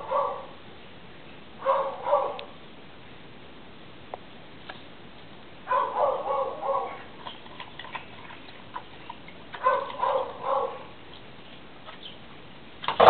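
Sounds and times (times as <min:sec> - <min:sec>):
dog barking: 0:00.0 - 0:00.6, 0:01.6 - 0:02.5, 0:05.7 - 0:07.1, 0:09.6 - 0:10.9.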